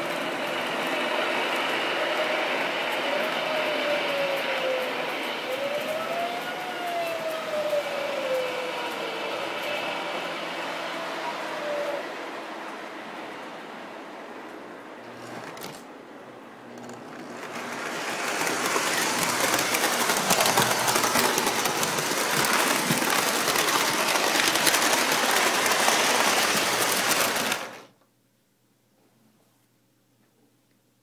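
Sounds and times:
model train clattering: 16.7s - 27.9s.

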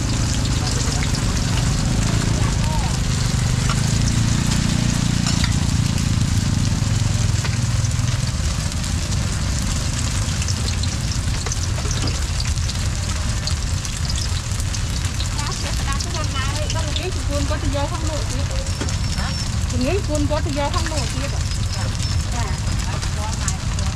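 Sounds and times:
low rumble: 0.0s - 23.9s
oil sizzling on griddle: 0.0s - 23.9s.

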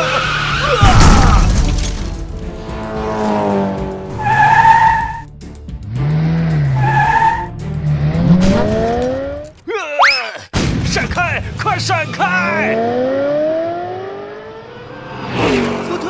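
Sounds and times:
background music: 0.0s - 9.8s
tyres skidding: 0.0s - 9.9s.

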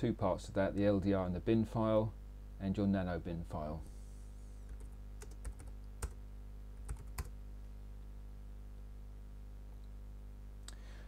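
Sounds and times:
low electrical hum: 0.0s - 11.0s
keyboard typing: 4.7s - 6.2s, 6.8s - 7.3s.

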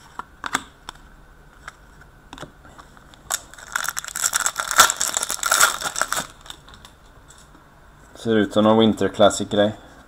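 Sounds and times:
foil wrappers crinkling: 3.2s - 6.9s.

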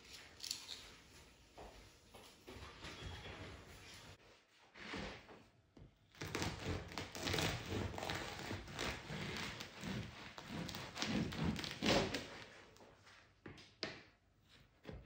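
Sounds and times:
bread knife sawing crusty bread: 6.3s - 12.4s.

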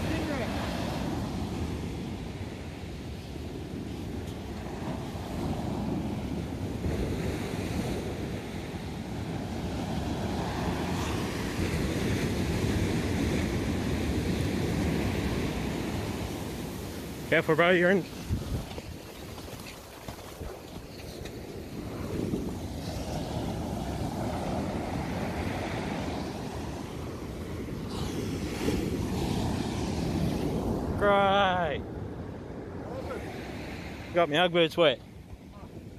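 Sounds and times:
surf breaking on a beach: 0.0s - 35.9s
wind buffeting microphone: 18.0s - 34.2s.

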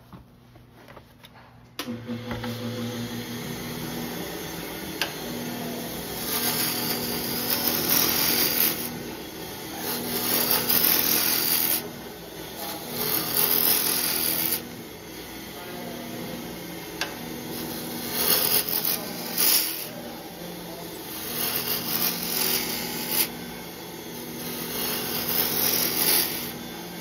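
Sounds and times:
wood lathe humming: 1.8s - 27.0s
gouge cutting wood shavings: 5.0s - 14.8s, 17.0s - 27.0s.

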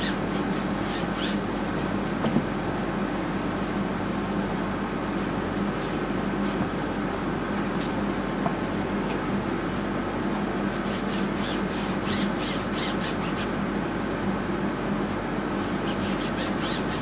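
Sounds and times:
rag rubbing on canvas: 0.0s - 2.1s, 10.7s - 13.5s, 15.7s - 17.0s
low room hum: 0.0s - 17.0s.

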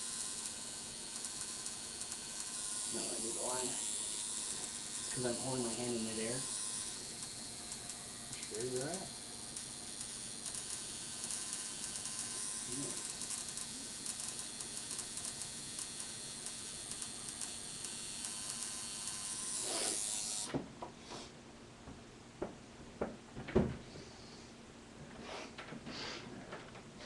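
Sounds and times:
tattoo machine buzzing: 0.0s - 20.6s.

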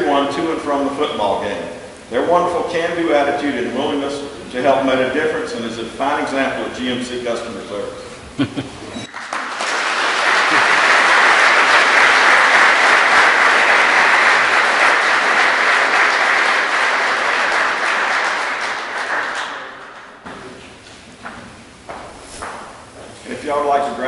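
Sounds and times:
audience applauding: 9.1s - 20.2s.

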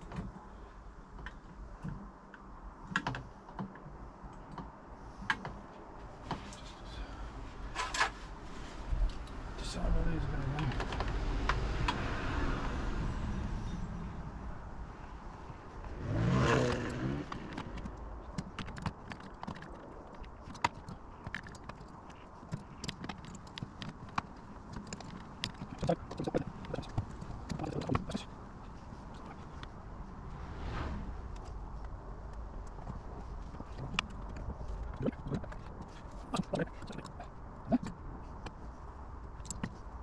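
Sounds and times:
hand tools clicking and knocking: 17.2s - 28.2s.

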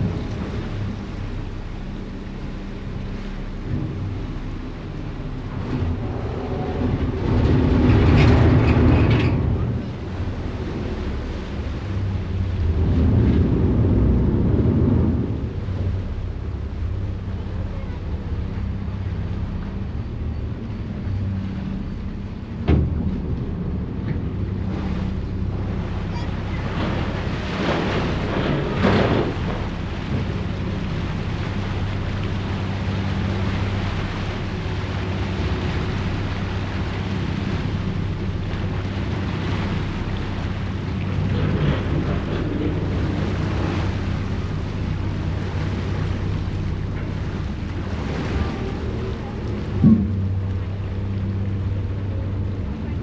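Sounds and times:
ferry engine humming: 0.0s - 53.0s
wind buffeting microphone: 3.6s - 17.8s
thump: 22.6s - 23.0s, 49.8s - 50.2s
propeller wash churning: 23.6s - 53.0s.

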